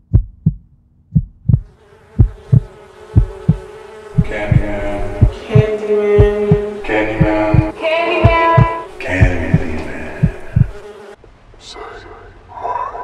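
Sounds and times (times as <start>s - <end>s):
heartbeat thumps: 0.0s - 10.8s
droning music bed: 4.2s - 10.6s.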